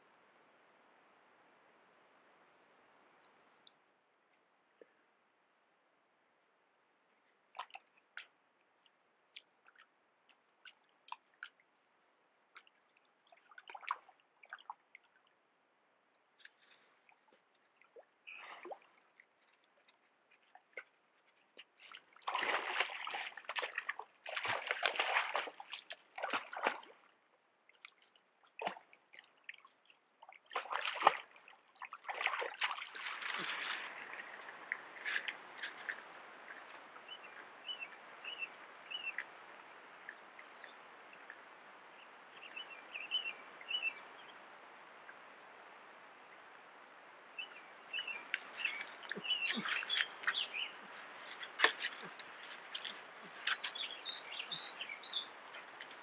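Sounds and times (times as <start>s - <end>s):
small water drips: 2.6s - 3.8s, 7.2s - 15.4s, 16.1s - 43.8s, 47.9s - 56.0s
water sloshing and splashing: 12.5s - 15.4s, 16.4s - 41.5s, 48.2s - 56.0s.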